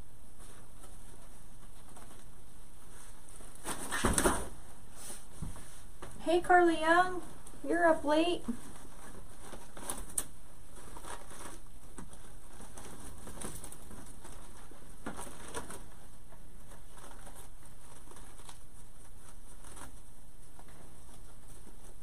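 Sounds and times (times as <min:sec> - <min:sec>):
background hiss: 0:00.0 - 0:22.0.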